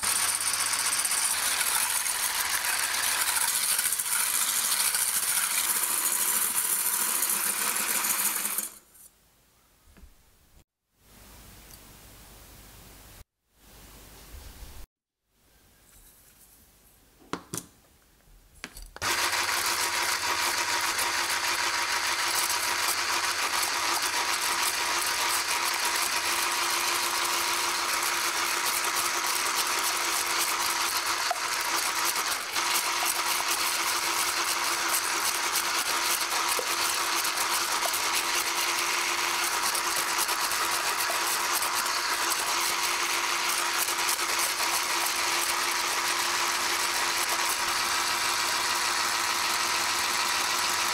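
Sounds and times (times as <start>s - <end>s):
electric hand mixer running: 0.0s - 8.8s, 19.0s - 50.9s.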